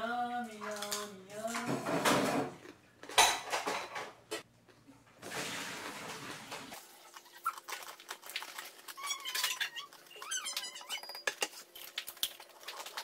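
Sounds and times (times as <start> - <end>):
plastic snack bag crinkling: 6.8 - 13.0.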